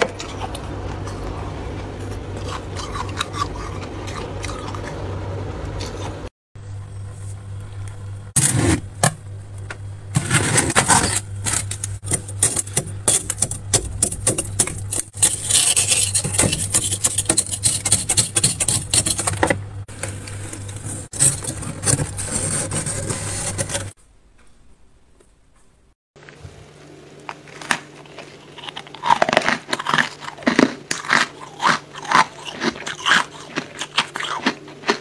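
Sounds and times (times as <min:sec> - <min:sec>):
metal scraper scraping frost: 0:08.4 - 0:08.9, 0:10.1 - 0:13.6, 0:14.6 - 0:19.6, 0:20.2 - 0:24.0.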